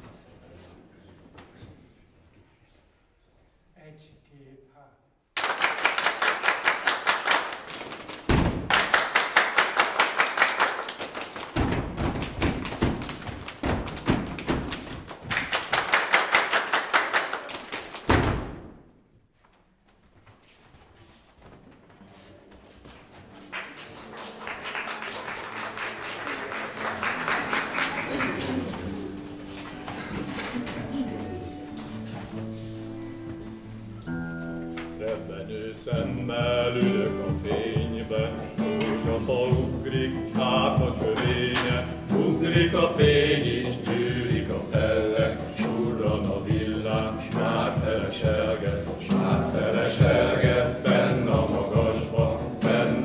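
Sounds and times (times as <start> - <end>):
men clapping in rhythm: 5.4 - 11.6, 12.2 - 18.1, 24.0 - 28.6
foot stomps on wooden stage: 8.2 - 8.8, 11.5 - 15.3, 18.0 - 18.9.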